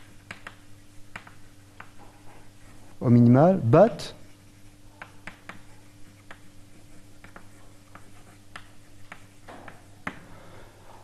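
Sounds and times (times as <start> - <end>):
chalk tapping on blackboard: 0.0 - 2.8, 3.9 - 10.3
faint room hum: 0.0 - 11.0.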